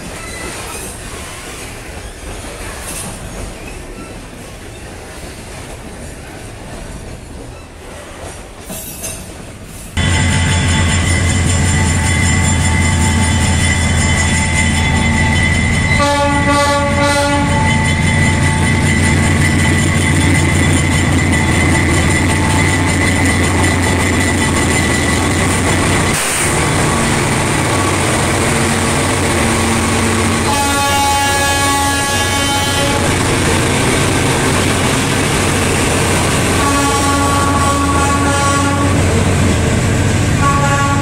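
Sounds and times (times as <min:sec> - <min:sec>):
locomotive engines droning: 0:10.0 - 0:41.0
multi-note train horn: 0:16.0 - 0:18.0, 0:30.0 - 0:33.2, 0:36.6 - 0:39.1, 0:40.4 - 0:41.0.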